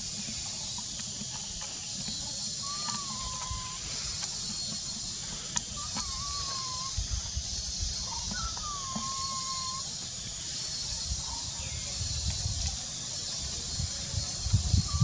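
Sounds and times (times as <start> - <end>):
monkey coo call: 2.3 - 11.6.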